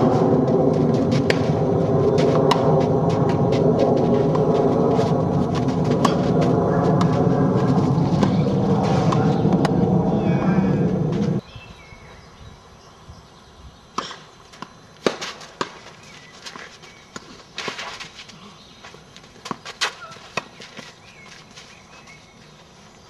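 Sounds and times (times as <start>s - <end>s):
loud low rumble: 0.0s - 11.4s.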